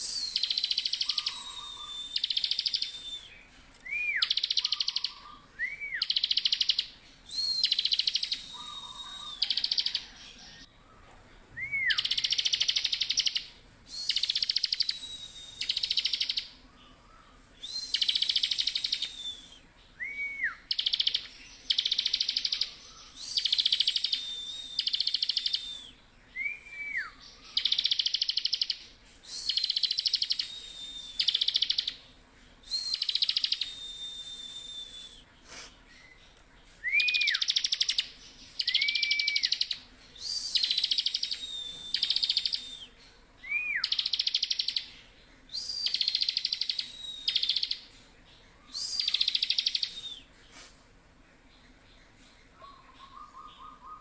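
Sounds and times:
bird thin whistles: 0.0 - 6.6, 7.2 - 10.2, 29.2 - 31.8, 36.8 - 38.0, 38.6 - 44.8.

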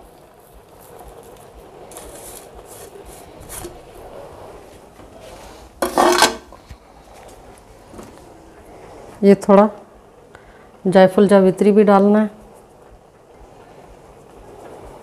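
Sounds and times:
fried onions rustling: 0.0 - 7.7.

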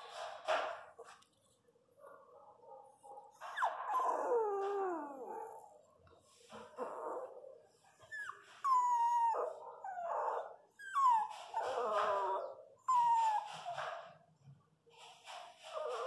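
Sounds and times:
dog whimpering and crying: 3.4 - 5.9, 6.6 - 14.0.

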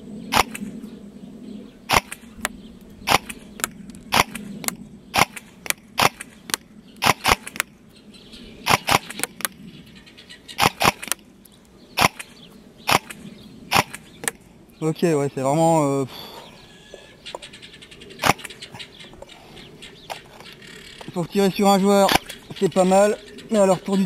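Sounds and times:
airsoft rifle shots snapping: 0.3 - 0.7, 1.9 - 7.7, 8.7 - 9.6, 10.6 - 11.2, 12.0 - 14.4, 18.2 - 18.6, 22.1 - 22.4.

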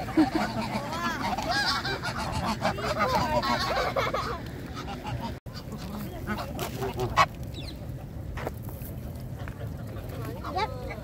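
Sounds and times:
geese honking: 0.0 - 7.4, 9.6 - 11.0.

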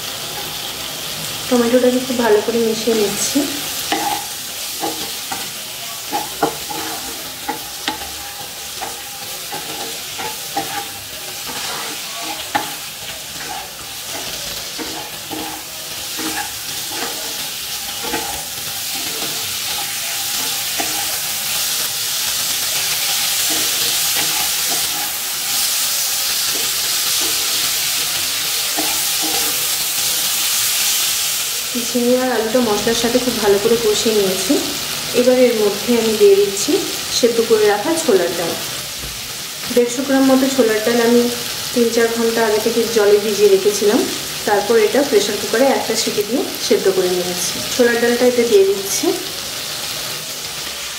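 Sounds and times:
vegetables sizzling in oil: 0.0 - 50.9
spatula scraping pan: 3.1 - 31.1.

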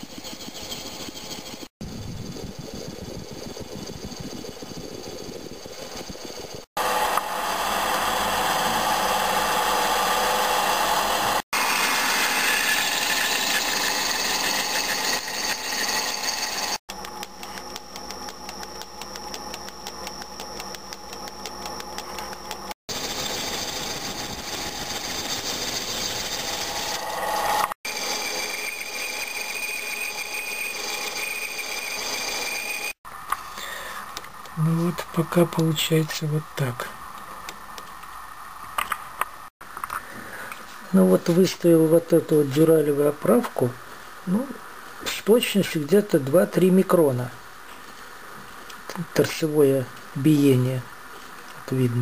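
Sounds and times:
metal lathe cutting: 6.8 - 16.8, 22.9 - 33.0.

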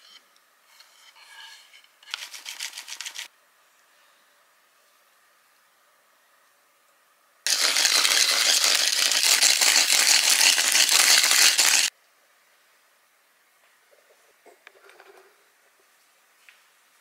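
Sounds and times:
pepper mill grinding: 2.1 - 3.3, 7.5 - 11.9.

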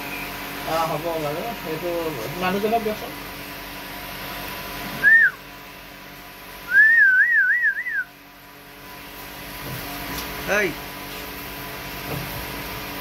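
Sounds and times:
person whistling: 5.0 - 5.4, 6.7 - 8.1.

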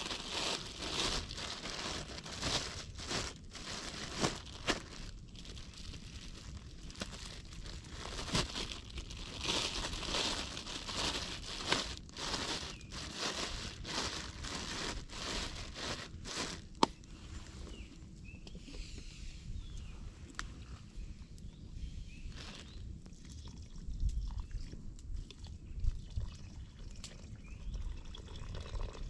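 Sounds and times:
crinkling and rustling: 0.0 - 17.0.

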